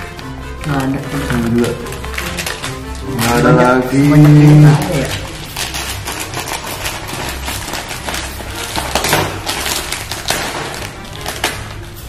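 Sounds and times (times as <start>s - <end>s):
plastic snack packets crinkling: 0.0s - 12.0s.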